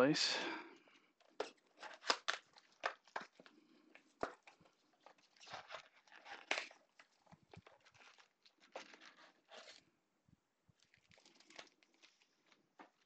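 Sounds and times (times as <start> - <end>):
plastic shrink wrap crinkling: 1.3 - 9.9, 10.7 - 13.0.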